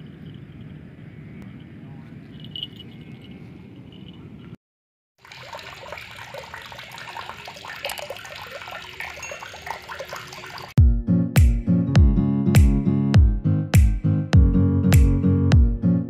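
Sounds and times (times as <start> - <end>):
patter of pops and drips: 5.2 - 10.8.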